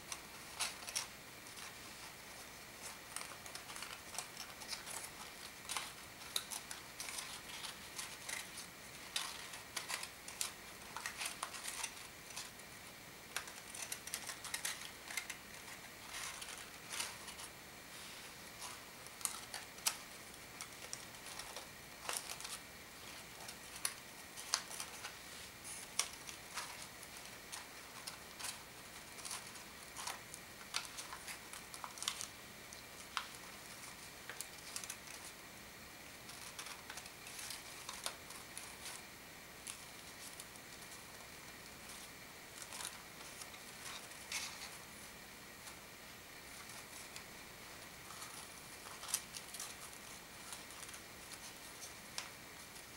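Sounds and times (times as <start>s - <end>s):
paper rustling and crinkling: 0.0s - 52.9s
small clicks and crackles: 0.0s - 52.9s.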